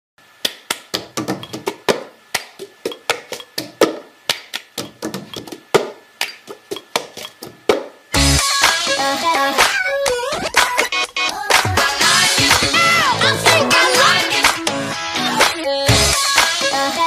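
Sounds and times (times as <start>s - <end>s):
music with heavy bass beat: 8.2s - 17.0s.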